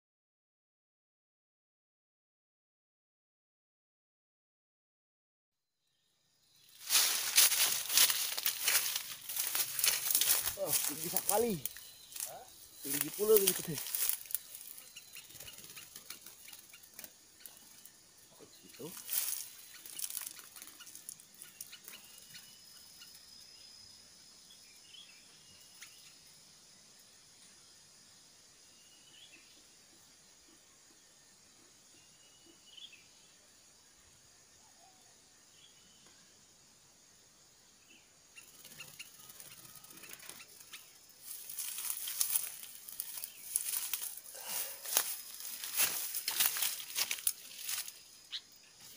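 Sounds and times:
bird chirps: 5.8 - 26.6, 28.6 - 36.4, 37.8 - 48.9
high insect whine: 5.9 - 48.9
crackling rustle of handling: 6.7 - 17.6, 18.7 - 21.7, 41.2 - 48.0.

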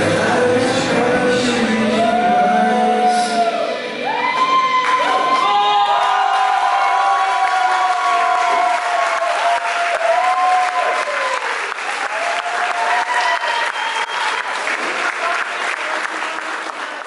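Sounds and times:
people cheering: 1.8 - 17.0
audience applauding: 4.2 - 17.0.

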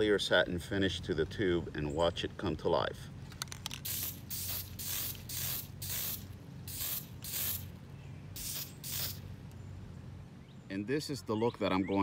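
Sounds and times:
spray can hissing bursts: 3.6 - 7.7, 8.4 - 9.3.

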